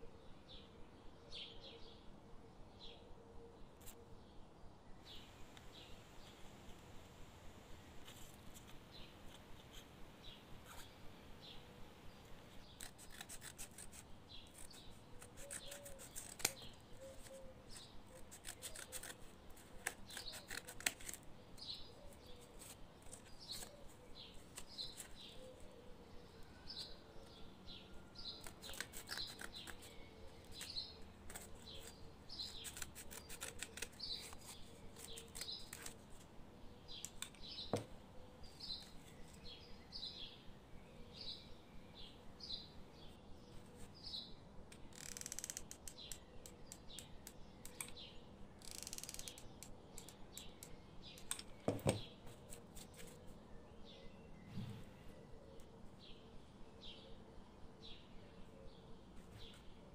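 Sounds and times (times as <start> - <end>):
bird chirping: 0.0 - 59.9
scissors snipping cardboard: 12.6 - 25.8, 28.2 - 36.3.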